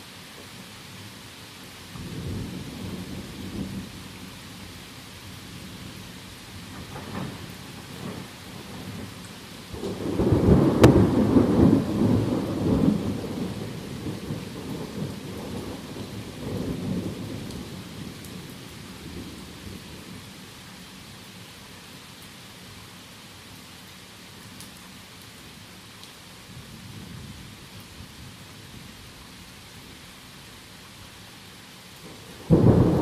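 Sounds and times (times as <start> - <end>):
heavy rain: 0.0 - 33.0
thunder crack and rumble: 6.7 - 9.1, 9.7 - 18.5, 32.1 - 33.0.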